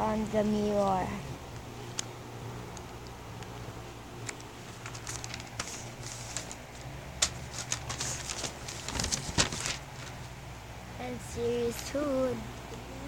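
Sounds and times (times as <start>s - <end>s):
steady low hum: 0.0s - 13.0s
paper rustling: 4.2s - 10.4s.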